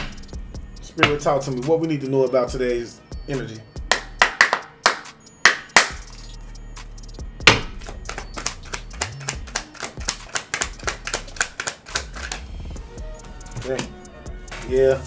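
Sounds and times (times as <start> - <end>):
cards slapping: 7.5 - 12.5
rapid card clicks: 8.0 - 12.5.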